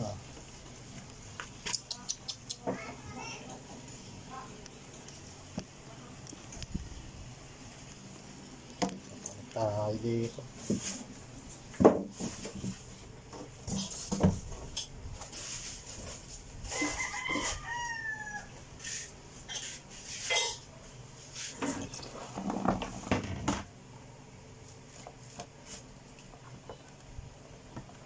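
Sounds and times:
rooster crowing: 16.6 - 18.7.

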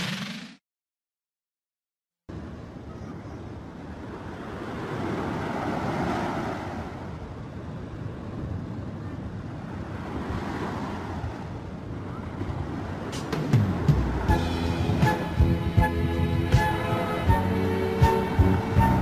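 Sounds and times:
waves washing onto beach: 3.9 - 8.4, 9.5 - 14.3.

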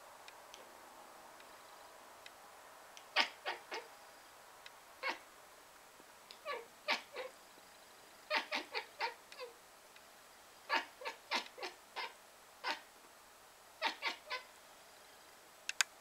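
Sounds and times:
cat chattering: 3.1 - 3.9, 5.0 - 5.2, 6.4 - 7.3, 8.3 - 9.6, 10.7 - 12.9, 13.8 - 14.5.

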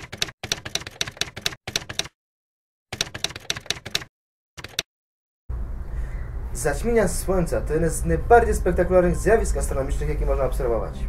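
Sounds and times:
typewriter key clacks: 0.0 - 2.1, 2.9 - 4.8.

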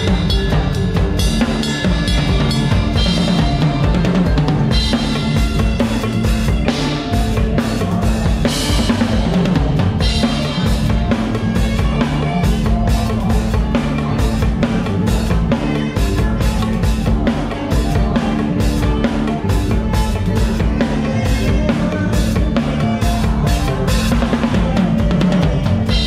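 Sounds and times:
drum kit played fast: 0.0 - 26.0
electric bass line: 0.0 - 26.0.

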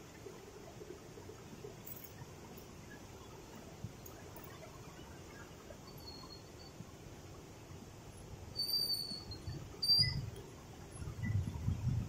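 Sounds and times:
bird whistling calls: 8.6 - 10.2.

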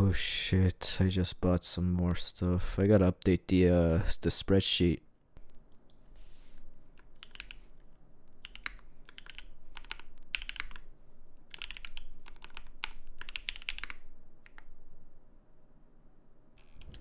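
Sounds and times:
mechanical keyboard typing: 7.0 - 7.6, 8.4 - 10.8, 11.5 - 14.7.

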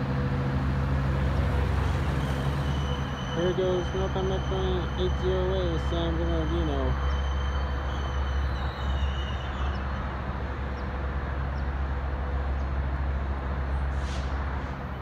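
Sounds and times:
diesel locomotive engine drone: 0.0 - 15.0
rail and background noise: 0.0 - 15.0.

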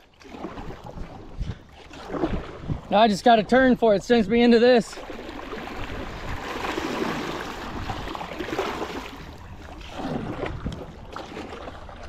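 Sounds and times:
river water rushing and splashing: 4.4 - 12.0.

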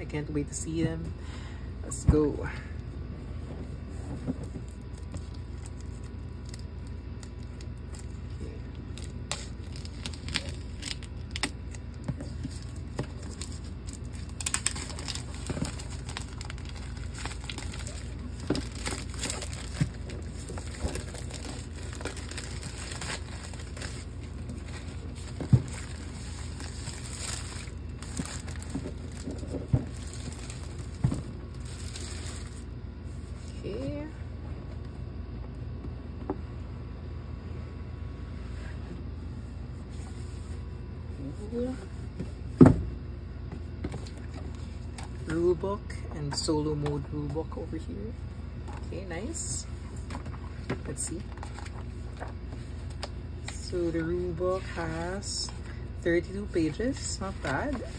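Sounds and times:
plastic wrap tearing and crinkling: 8.8 - 32.6.

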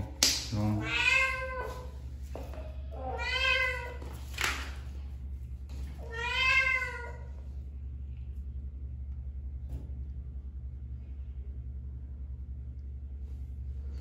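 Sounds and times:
cat meowing: 0.8 - 1.8, 3.0 - 4.0, 6.0 - 7.3.

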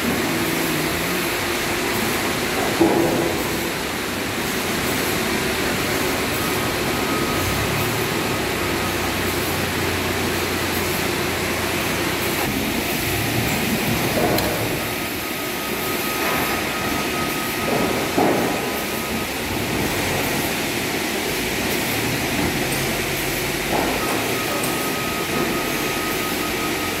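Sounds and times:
conveyor machinery rumbling: 0.0 - 27.0
thin machine whine: 22.7 - 27.0.

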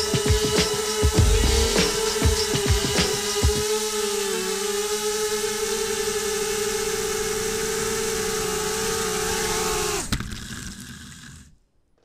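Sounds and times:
drone motors whining: 0.1 - 10.8
sharp knock on concrete: 0.6 - 3.6.

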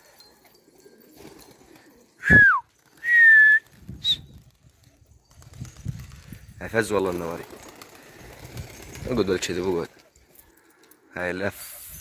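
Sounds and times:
person whistling: 2.2 - 4.3.

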